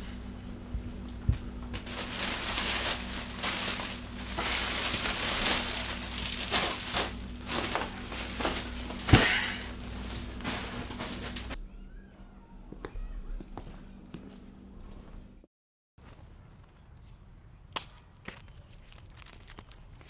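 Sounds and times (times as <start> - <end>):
plastic trash bag crinkling: 1.4 - 11.6, 18.7 - 20.0.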